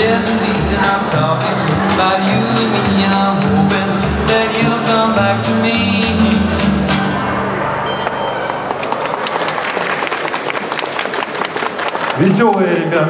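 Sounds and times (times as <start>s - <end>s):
song with singing over beat: 0.0s - 7.2s.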